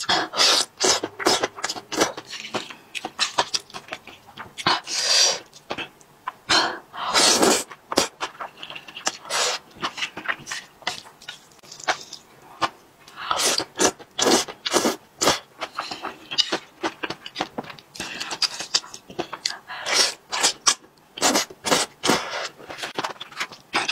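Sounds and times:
wet chewing with lip-smacking: 0.8s - 4.7s.

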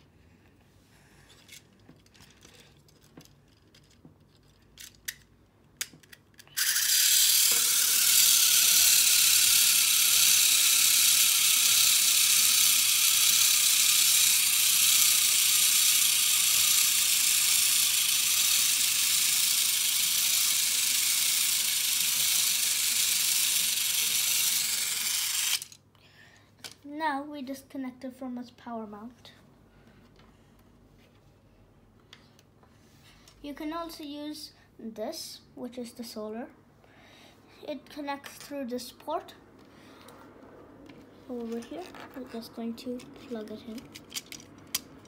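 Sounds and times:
small motor high-pitched whir: 6.5s - 25.8s.

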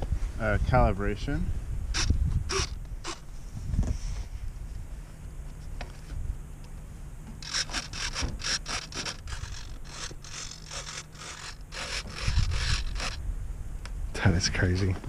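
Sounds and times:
foam model rubbing and scraping: 2.0s - 4.5s, 7.4s - 13.2s.

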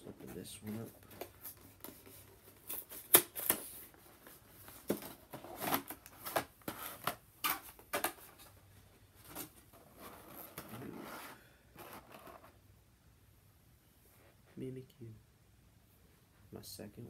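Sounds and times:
cardboard and plastic packaging crackling: 0.2s - 8.6s.

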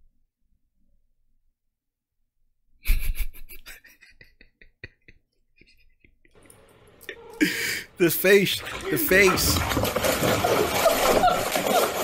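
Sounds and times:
man laughing: 2.8s - 6.4s, 7.4s - 9.4s.

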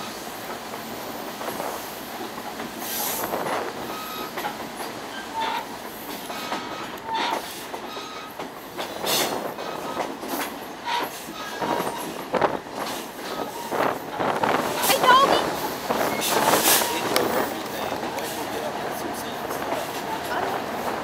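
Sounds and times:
train car rumbling and rattling: 0.0s - 21.0s
wheel squeals: 3.8s - 8.4s, 10.8s - 12.2s, 16.0s - 17.5s.

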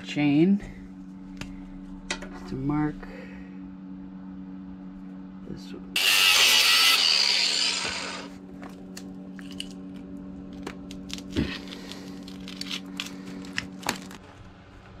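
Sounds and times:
steady low hum: 0.0s - 15.0s
angle grinder cutting steel: 6.0s - 8.4s.

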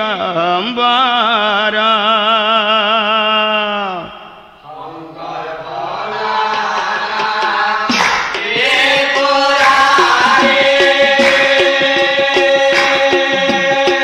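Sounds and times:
chorus of voices singing: 4.6s - 14.0s
drums and cymbals beat: 6.4s - 14.0s.

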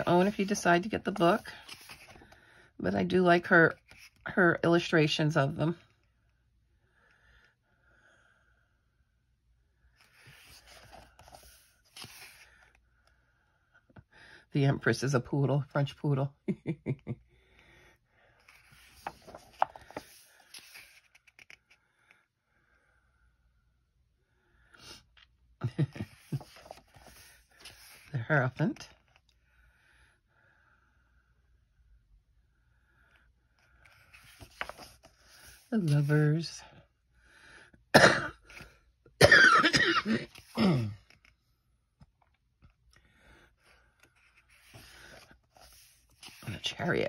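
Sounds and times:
book pages turning: 0.0s - 2.5s, 3.7s - 4.2s, 10.0s - 12.8s, 18.4s - 21.8s, 26.0s - 28.2s, 33.6s - 36.2s, 43.6s - 47.0s
woman clearing her throat: 37.9s - 38.4s, 39.2s - 41.0s
woman coughing: 37.9s - 38.4s, 39.2s - 41.0s.

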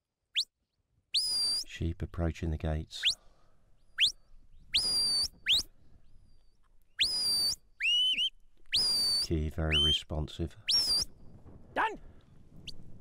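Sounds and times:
shepherd's whistle notes: 1.2s - 1.7s, 3.9s - 5.7s, 7.0s - 10.0s, 10.7s - 11.2s.

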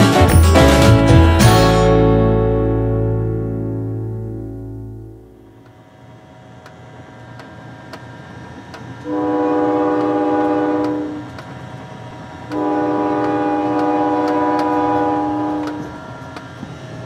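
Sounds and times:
steam locomotive whistle blasts: 9.0s - 11.3s, 12.5s - 16.0s.

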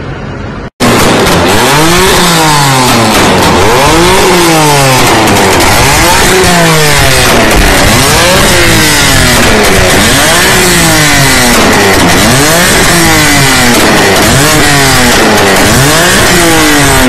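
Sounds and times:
car engine revving hard: 0.8s - 17.0s.

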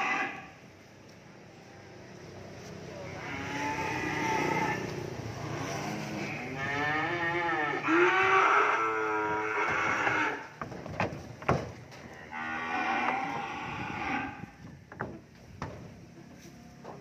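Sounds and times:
cattle mooing: 0.0s - 0.5s, 3.1s - 10.5s, 12.0s - 14.5s.

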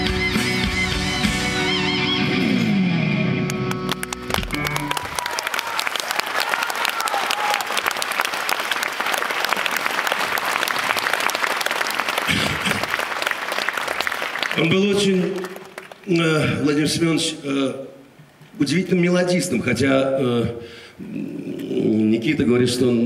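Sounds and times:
live band with guitar: 0.0s - 5.1s
audience applause: 3.5s - 16.2s.

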